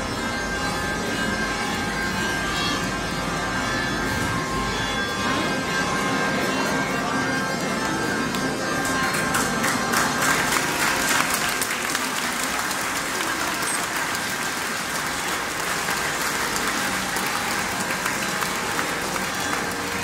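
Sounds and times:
large crowd clapping: 6.6s - 20.0s.

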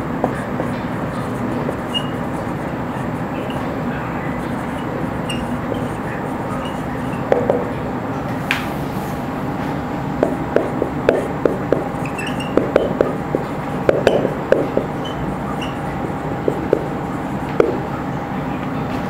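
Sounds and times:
marker squeaking on whiteboard: 0.0s - 7.7s, 10.2s - 18.1s.

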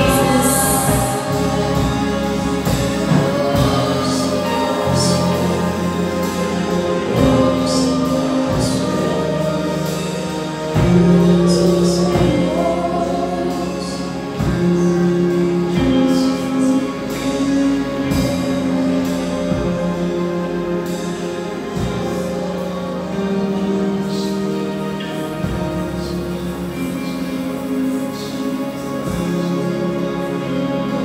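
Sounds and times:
group singing slow worship song: 0.0s - 31.0s.

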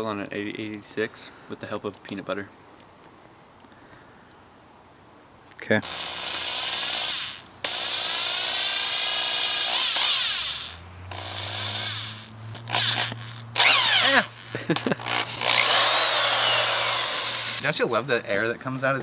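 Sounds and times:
cordless drill motor spinning: 5.8s - 17.6s.

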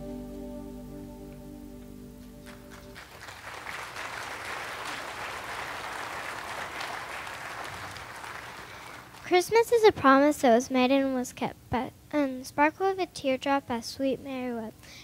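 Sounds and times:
held chord of music: 0.0s - 3.0s
congregation applauding: 2.4s - 9.3s.

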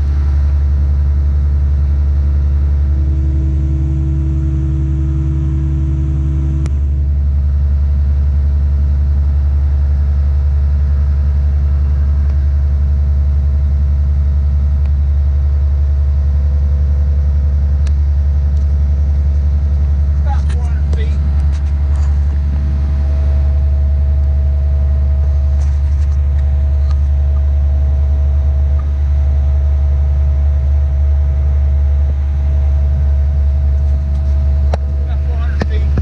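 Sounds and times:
diesel engine droning: 0.0s - 36.0s
higher hum: 0.0s - 36.0s.

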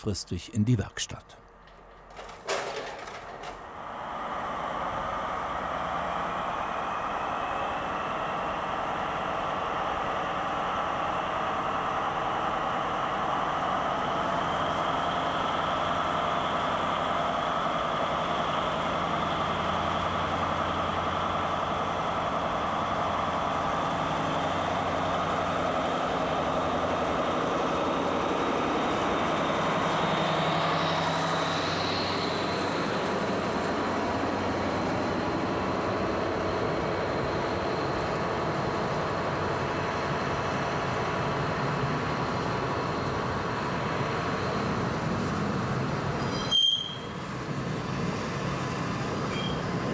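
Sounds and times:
diesel locomotive engine: 0.0s - 49.9s
locomotive high whine: 0.0s - 49.9s
wagons rolling past: 1.6s - 4.0s.

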